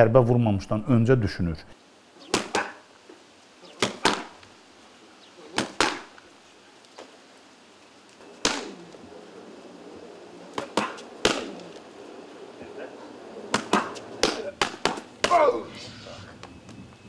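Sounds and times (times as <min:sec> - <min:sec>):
boxing gloves striking focus mitts: 0:03.8 - 0:04.4, 0:05.6 - 0:06.1, 0:08.4 - 0:08.8, 0:10.6 - 0:11.5, 0:13.5 - 0:15.5.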